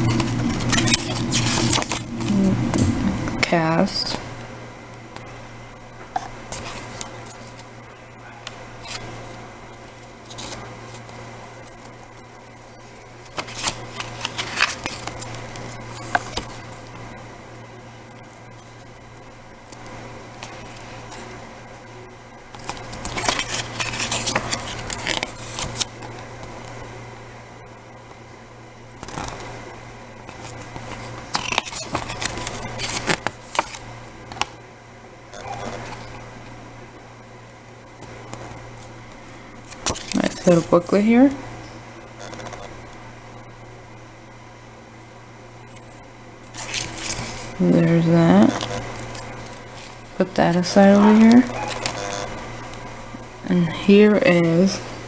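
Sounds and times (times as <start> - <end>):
steady low hum: 0.0 - 55.0
paper pages rustling: 0.1 - 2.4, 10.2 - 11.9, 13.3 - 16.6, 22.5 - 26.6, 29.0 - 29.5, 30.3 - 34.5, 39.6 - 40.8, 45.8 - 47.6, 48.5 - 52.3.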